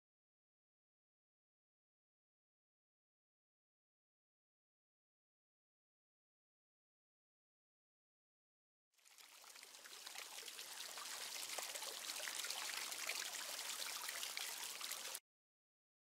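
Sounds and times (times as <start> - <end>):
fountain water splashing: 9.0 - 15.2.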